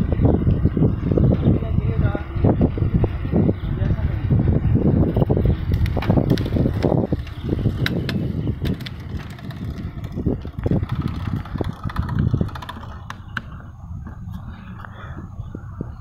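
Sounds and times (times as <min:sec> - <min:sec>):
bicycle tyres rumbling on pavement: 0:00.0 - 0:16.0
light clicks and rattles: 0:05.7 - 0:13.5.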